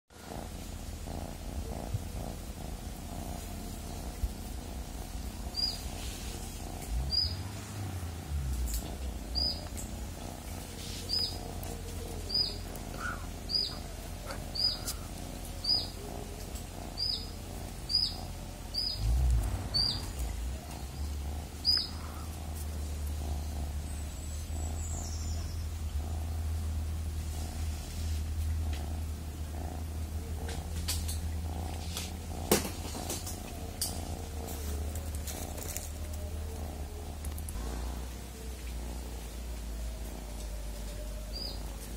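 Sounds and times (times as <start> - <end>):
cat purring: 0.1 - 41.9
bird chirping: 5.5 - 5.9, 6.8 - 7.4, 8.7 - 10.0, 10.8 - 26.0, 41.1 - 41.7.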